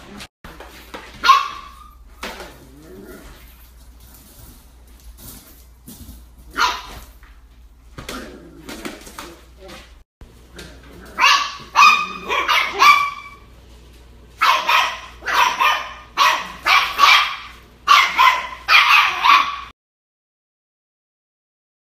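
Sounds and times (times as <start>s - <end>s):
puppies barking: 1.1s - 2.0s, 6.5s - 7.1s, 10.6s - 13.5s, 14.4s - 19.7s.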